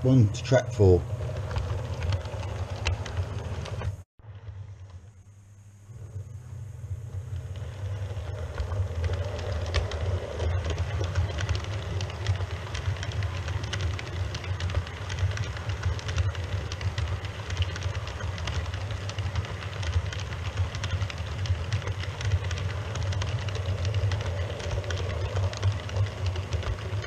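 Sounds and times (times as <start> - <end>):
wheels clicking on track: 0.0 - 5.1, 6.0 - 27.0
model train motor hum: 5.7 - 27.0.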